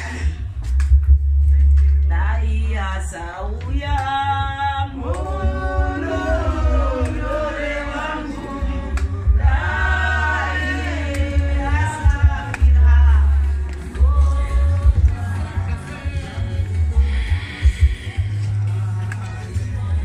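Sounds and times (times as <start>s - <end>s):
low rumble: 0.0s - 19.0s
choir singing: 5.0s - 17.2s.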